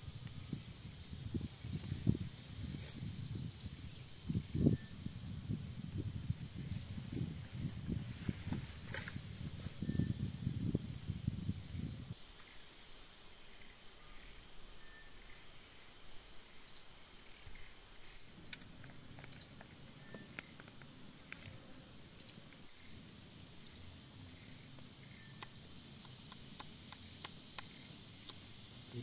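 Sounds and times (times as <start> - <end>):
bird chirping: 9.8 - 10.3, 16.3 - 20.8, 23.6 - 29.0.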